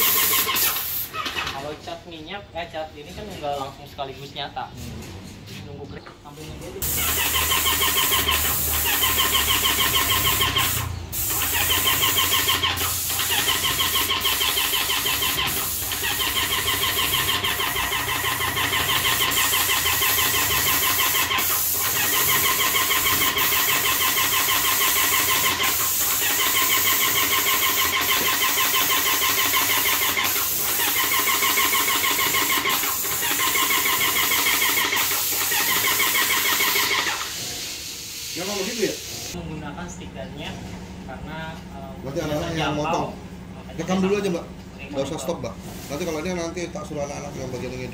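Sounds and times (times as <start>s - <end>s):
hiss of sprayed paint: 0.0s - 1.2s, 6.8s - 39.4s, 45.6s - 46.3s
paint sprayer pump chatter: 0.0s - 1.8s, 6.8s - 39.4s.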